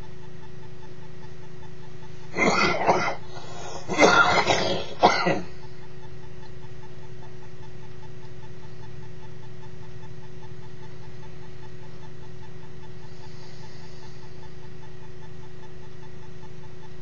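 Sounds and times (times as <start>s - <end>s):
man coughing: 2.4s - 5.6s.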